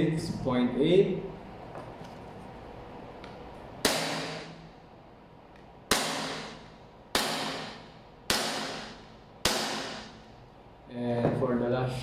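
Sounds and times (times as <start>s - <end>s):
airsoft pistol shots: 3.8s - 4.6s.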